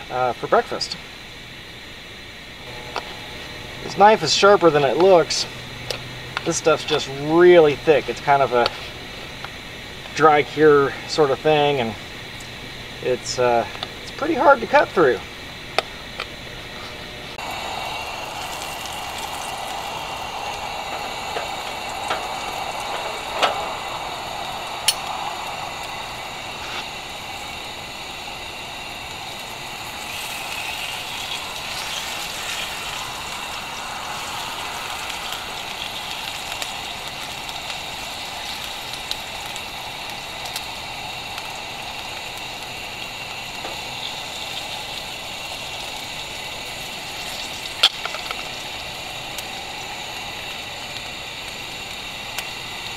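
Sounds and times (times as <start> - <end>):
bacon sizzling in a frying pan: 0.0 - 16.5, 17.3 - 52.9.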